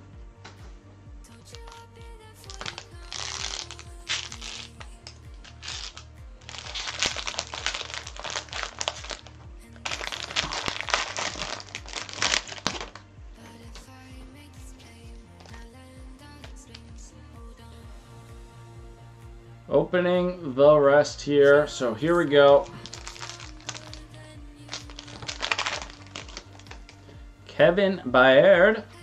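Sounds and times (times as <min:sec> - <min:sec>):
background music with steady beat: 0:00.0 - 0:29.0
foil wrappers crinkling: 0:01.5 - 0:01.8, 0:02.4 - 0:13.0, 0:22.4 - 0:27.0.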